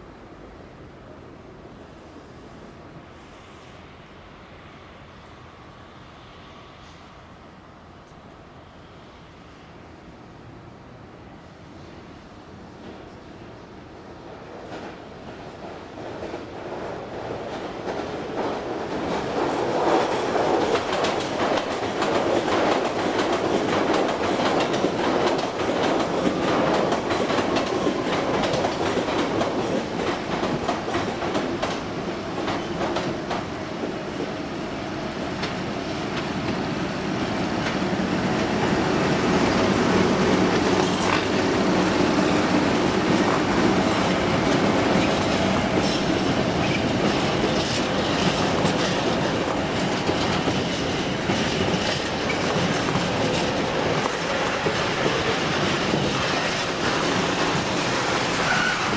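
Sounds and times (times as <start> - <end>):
electric locomotive passing: 0.0 - 58.9
wheels clattering over rail joints: 42.2 - 58.9.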